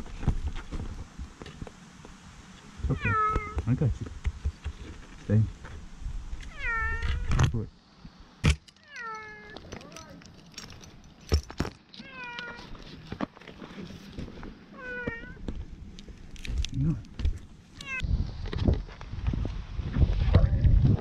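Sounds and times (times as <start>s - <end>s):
kitten meowing: 2.9s - 3.6s, 6.5s - 7.3s, 17.8s - 18.0s.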